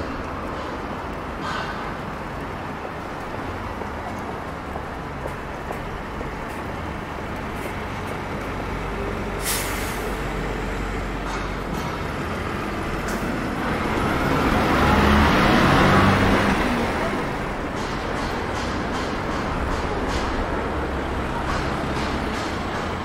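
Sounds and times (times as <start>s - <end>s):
heavy vehicle engine passing: 6.0s - 23.0s
air brakes hissing: 9.3s - 10.5s.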